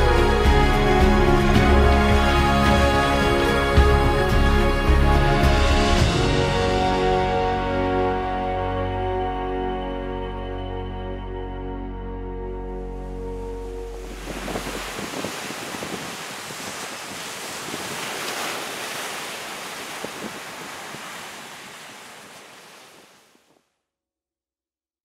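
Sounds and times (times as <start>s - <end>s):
sea waves breaking: 13.0s - 23.6s
wind buffeting microphone: 13.9s - 23.1s.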